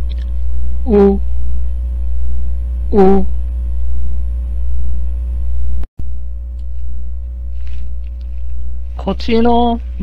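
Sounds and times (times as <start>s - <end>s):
low electrical hum: 0.0s - 10.0s
person saying short vowel: 0.9s - 1.2s, 2.9s - 3.3s.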